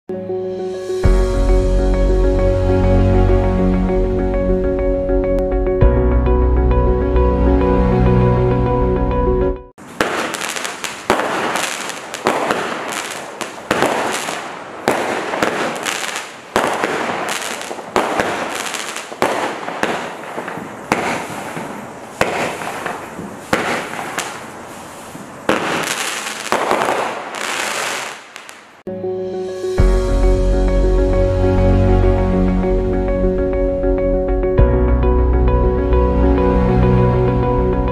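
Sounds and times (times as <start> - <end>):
firework shots banging and hissing: 9.8 - 28.8.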